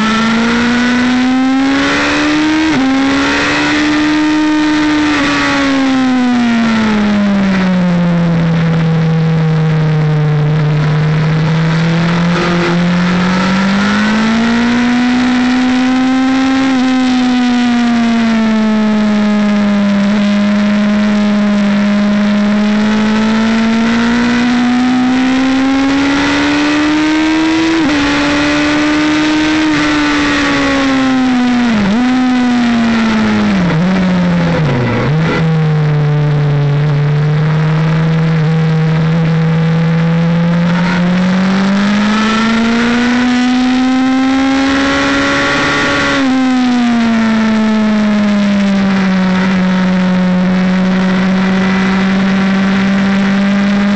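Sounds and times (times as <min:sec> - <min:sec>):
racing motorcycle engine: 0:00.0 - 0:53.9
wind and road noise: 0:00.0 - 0:53.9.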